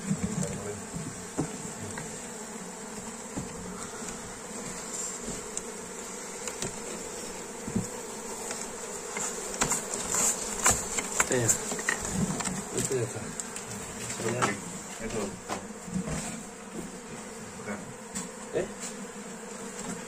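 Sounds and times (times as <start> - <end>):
swarm of bees buzzing: 0.0 - 20.0
faint knocks: 0.1 - 2.2.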